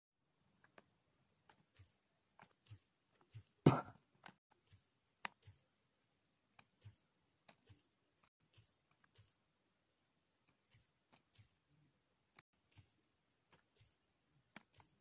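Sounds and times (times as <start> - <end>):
faint clicks and soft taps: 12.3 - 15.0.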